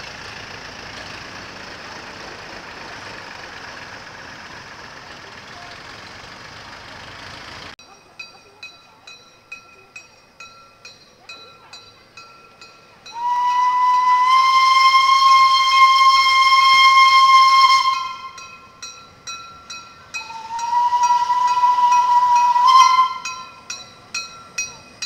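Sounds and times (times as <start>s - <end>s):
diesel truck engine: 0.0s - 7.8s
level-crossing bell ringing: 7.8s - 13.3s, 18.2s - 25.0s
steam locomotive whistle: 13.1s - 18.7s, 20.2s - 23.7s.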